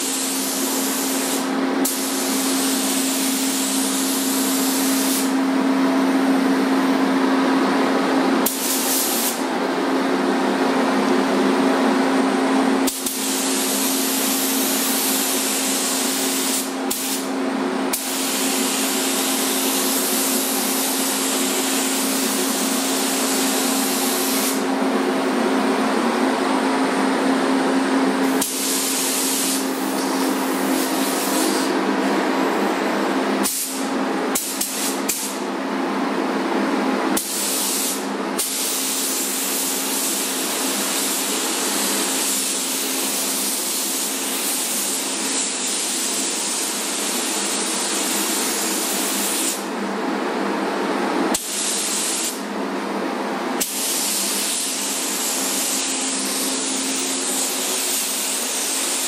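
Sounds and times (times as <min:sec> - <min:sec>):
spray gun hissing: 0:00.0 - 0:05.4, 0:08.4 - 0:09.4, 0:12.9 - 0:17.3, 0:17.9 - 0:24.6, 0:28.2 - 0:31.8, 0:33.4 - 0:33.8, 0:34.4 - 0:35.4, 0:37.2 - 0:49.6, 0:51.4 - 0:52.4, 0:53.6 - 0:59.0.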